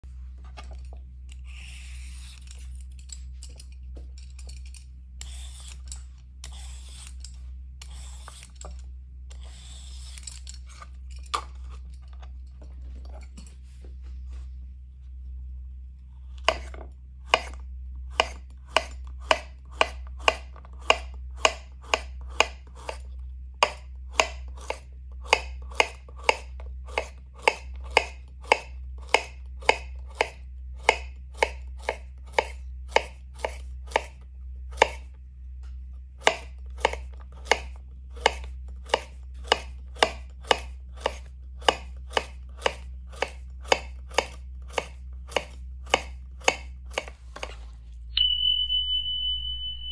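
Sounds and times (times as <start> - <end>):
knife chopping on cutting board: 16.4 - 23.0, 23.6 - 35.1, 36.2 - 47.6.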